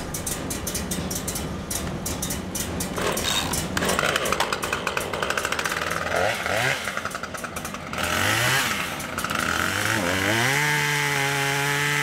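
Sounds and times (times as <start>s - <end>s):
chainsaw idling: 2.9s - 12.0s.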